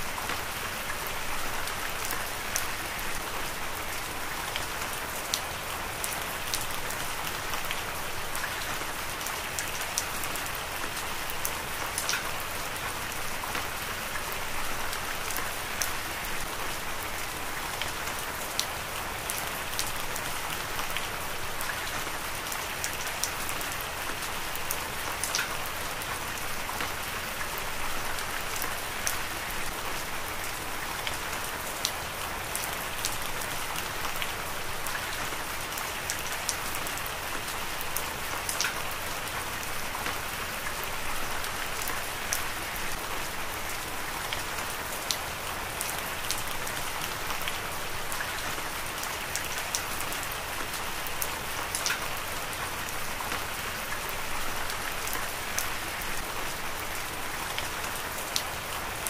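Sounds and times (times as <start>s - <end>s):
heavy rain: 0.0s - 59.0s.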